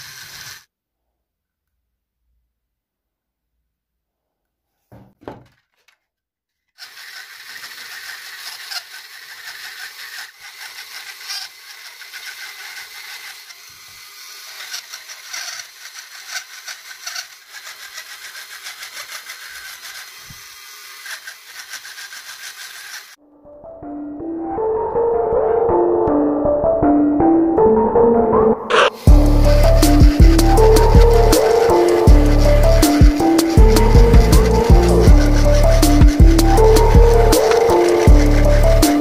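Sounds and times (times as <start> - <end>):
rotary tool carving wood: 0.0 - 0.7, 6.7 - 23.2, 28.7 - 39.0.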